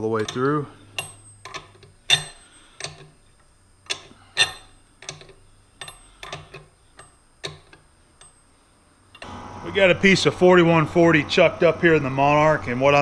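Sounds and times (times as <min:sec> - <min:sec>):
metallic clicks of wrench on tap: 0:00.2 - 0:03.1, 0:03.9 - 0:08.4.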